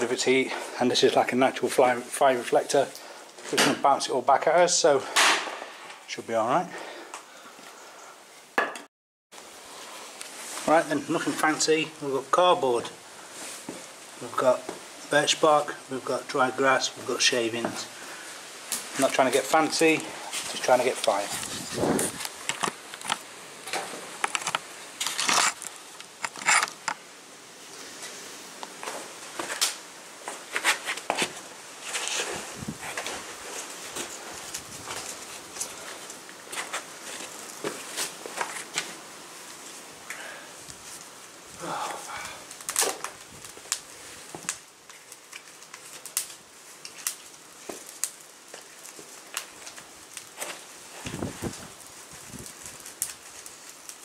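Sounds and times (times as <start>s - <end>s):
small fire crackling and popping: 0.0s - 8.6s, 9.3s - 54.0s
dry tinder rustling and scraping: 9.6s - 11.9s, 12.6s - 27.0s, 27.7s - 54.0s.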